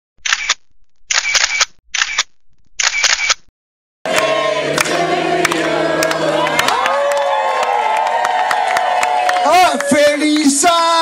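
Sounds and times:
camera shutter sound effect: 0.2s - 3.5s
party music: 4.0s - 10.5s
party crowd noise: 4.0s - 11.0s.

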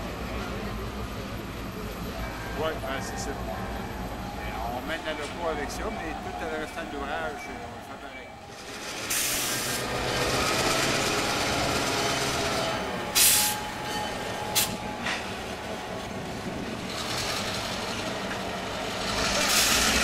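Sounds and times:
diesel locomotive engine running: 0.0s - 20.0s
loud bursts of noise: 4.0s - 20.0s.

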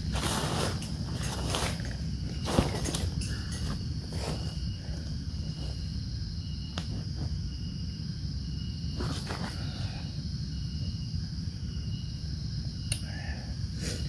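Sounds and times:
insects droning: 0.0s - 14.0s
lower repeating insect call: 0.0s - 14.0s.

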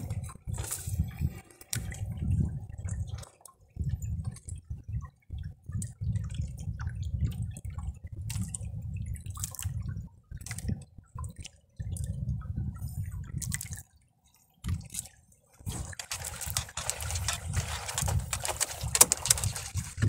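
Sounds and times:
water dripping and splashing: 1.6s - 14.0s.

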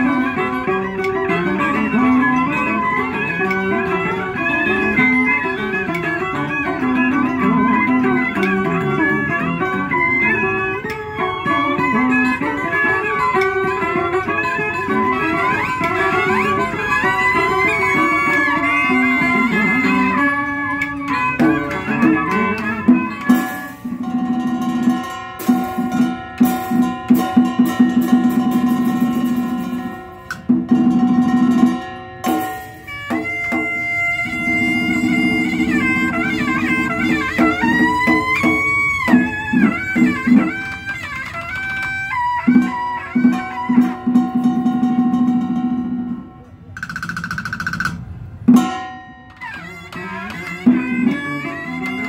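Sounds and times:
sliding melody: 0.0s - 46.8s, 48.0s - 52.0s
plucked lutes: 0.0s - 52.0s
rapid sharp percussion strikes: 0.0s - 52.0s
pulsing drum: 11.2s - 46.2s.

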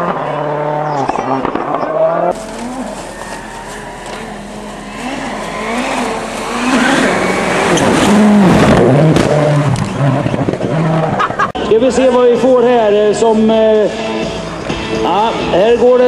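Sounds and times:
rally car engine passing: 0.0s - 11.4s.

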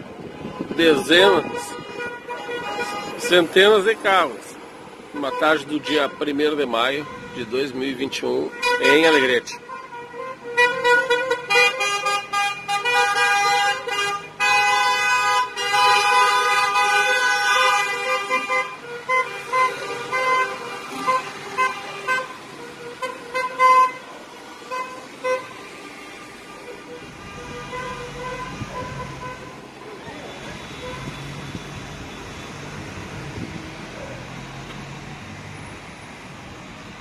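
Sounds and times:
car horns honking: 0.4s - 4.3s, 5.1s - 31.8s
cars rolling past: 17.1s - 37.0s.

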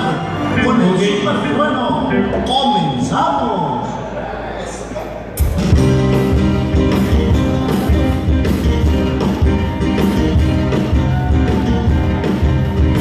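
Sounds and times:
live rock band playing: 5.4s - 13.0s.

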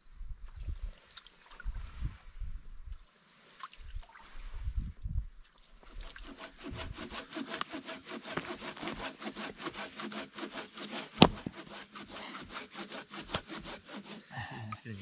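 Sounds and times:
hand saw cutting a log: 5.9s - 14.3s
hatchet chop splitting wood: 6.2s - 14.2s.

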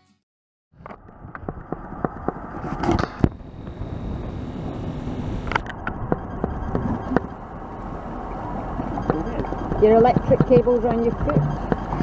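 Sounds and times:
wind rumbling on microphone: 0.8s - 12.0s
knocks and clicks from ropes: 10.0s - 12.0s.

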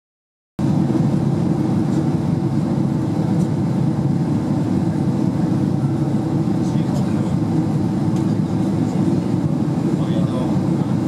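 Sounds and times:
airplane cabin engine noise: 0.6s - 11.0s.

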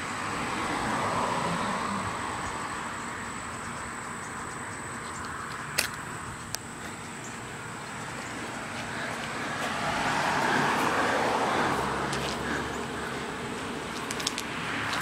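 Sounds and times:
vehicle driving past: 7.6s - 15.0s.

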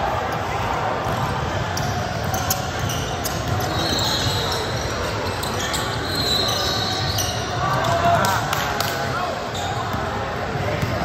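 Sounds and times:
din of players and spectators: 0.0s - 11.0s
high-pitched shoe squeaks: 2.3s - 7.5s.

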